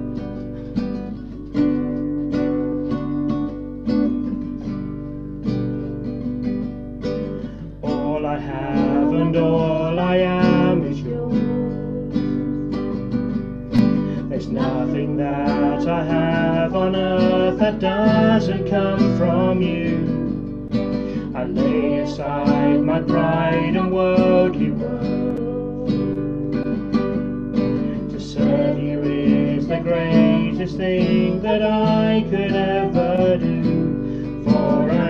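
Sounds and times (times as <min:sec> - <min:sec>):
acoustic guitar strumming: 0:00.0 - 0:35.0
person singing: 0:07.5 - 0:12.9, 0:13.8 - 0:26.8, 0:27.8 - 0:35.0.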